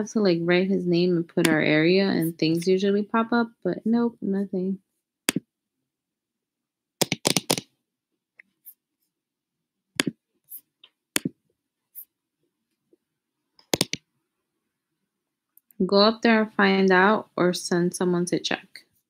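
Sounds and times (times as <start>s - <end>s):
sharp clicks and taps: 1.4s - 1.6s, 7.0s - 7.7s, 10.0s - 10.2s, 10.8s - 11.4s, 13.6s - 14.0s.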